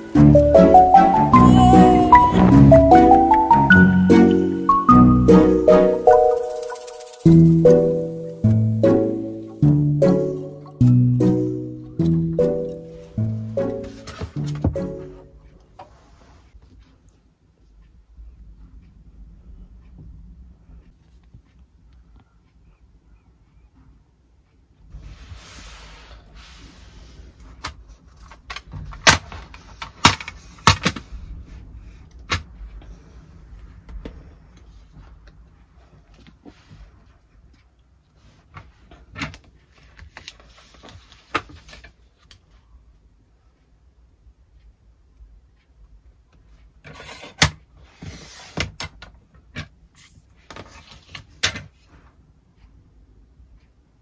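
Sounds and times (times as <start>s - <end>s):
sliding rustling noise: 5.8s - 8.5s, 13.7s - 17.3s, 24.9s - 28.5s, 29.3s - 42.3s, 46.8s - 48.9s, 49.9s - 52.2s.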